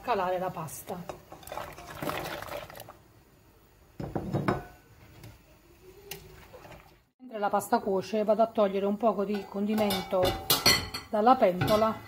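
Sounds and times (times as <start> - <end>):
dish clinking against a pot: 4.0 - 4.8, 9.3 - 12.0.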